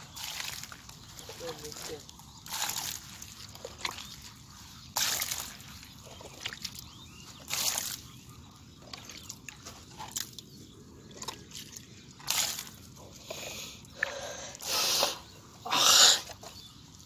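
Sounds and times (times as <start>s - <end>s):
metal bowl scooping water: 0.0s - 13.2s
muddy water sloshing: 0.0s - 17.0s.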